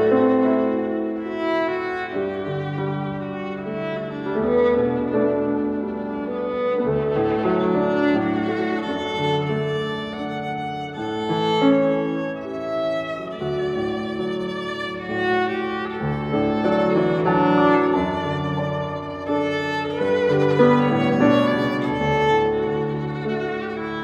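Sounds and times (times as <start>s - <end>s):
piano accompaniment: 0.0s - 24.0s
violin melody: 0.0s - 24.0s.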